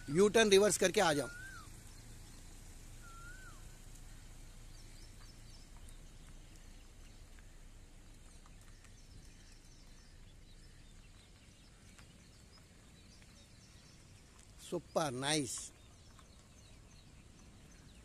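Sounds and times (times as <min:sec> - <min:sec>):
small birds chirping: 0:00.0 - 0:18.0
whistled rise-and-fall call: 0:01.1 - 0:01.7, 0:03.0 - 0:03.8.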